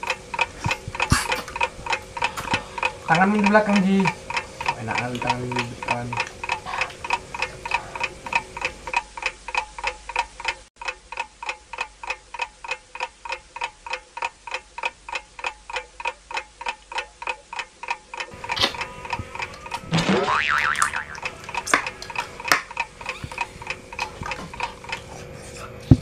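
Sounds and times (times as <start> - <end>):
countdown timer ticking: 14.6 - 24.0.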